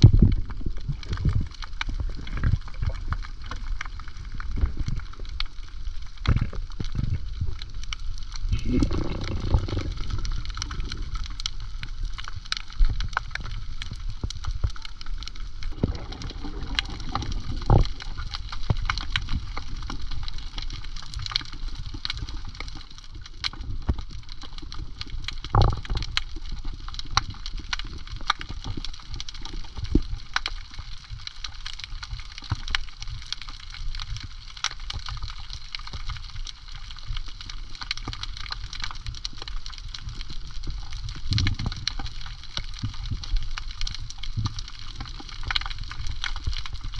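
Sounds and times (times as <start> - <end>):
water gurgling and sloshing: 0.0 - 46.9
low rumble: 8.5 - 11.2.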